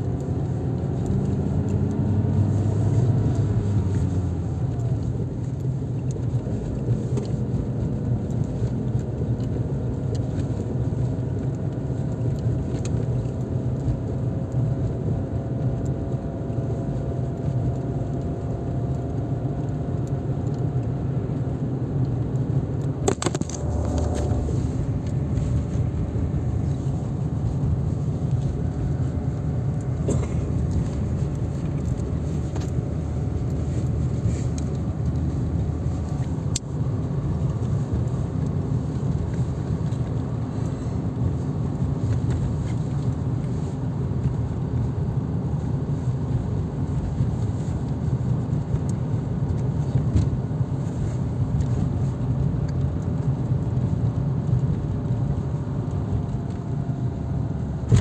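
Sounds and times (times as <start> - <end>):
car engine and tyres rumbling: 0.0 - 58.0
sharp clicks and rattles: 17.3 - 40.7.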